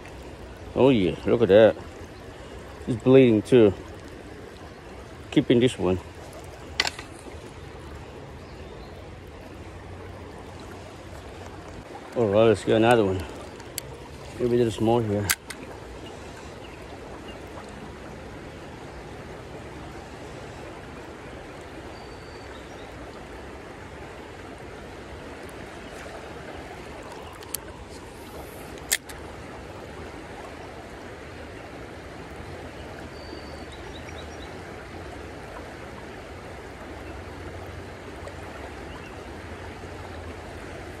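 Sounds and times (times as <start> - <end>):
creek water running over rocks: 0.0 - 41.0
sharp clicks: 15.2 - 15.6, 28.7 - 29.2.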